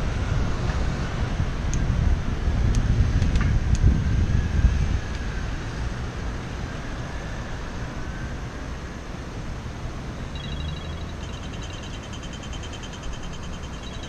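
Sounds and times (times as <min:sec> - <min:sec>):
wind buffeting microphone: 0:00.0 - 0:07.5
fast high ticking: 0:10.3 - 0:14.0.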